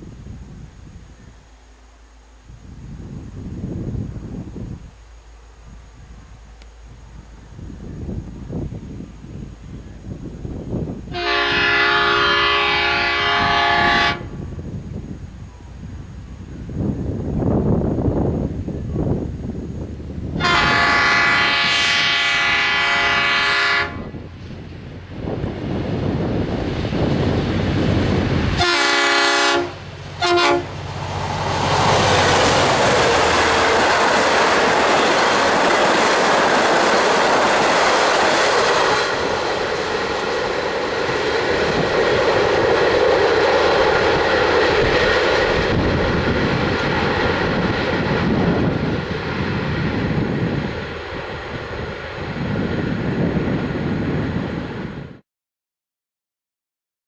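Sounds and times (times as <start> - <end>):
rolling of train carriages: 1.2 - 54.2
train passing loudly: 3.0 - 55.2
train horn: 11.1 - 14.5, 20.4 - 24.2, 28.6 - 30.8.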